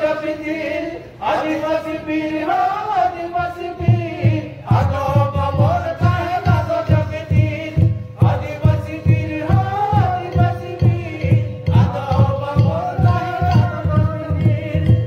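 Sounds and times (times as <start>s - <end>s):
man singing a chant-like song: 0.0s - 15.0s
low drum beat: 3.8s - 15.0s.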